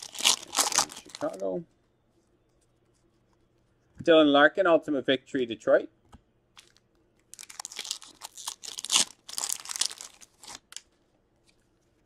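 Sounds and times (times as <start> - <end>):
plastic packaging crinkling: 0.0 - 1.6, 6.6 - 11.0.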